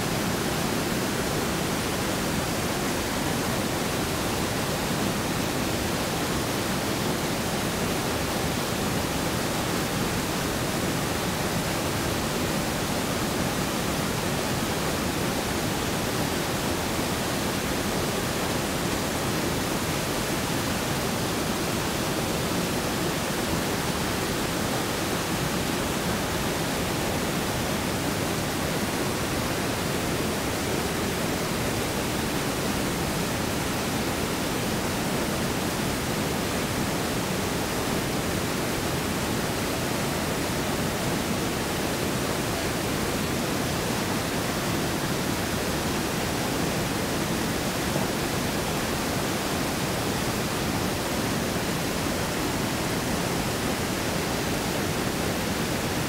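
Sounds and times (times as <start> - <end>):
river rushing: 0.0 - 56.0.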